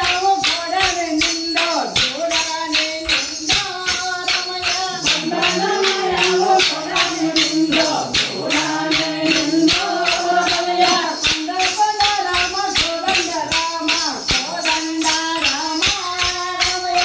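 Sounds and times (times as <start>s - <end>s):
group of voices singing: 0.0s - 17.0s
wooden sticks clacking: 2.0s - 16.7s.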